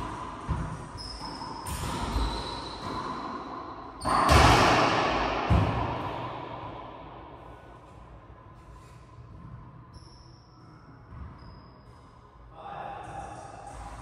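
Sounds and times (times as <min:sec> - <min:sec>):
racquetball thudding off walls: 0:04.0 - 0:06.5.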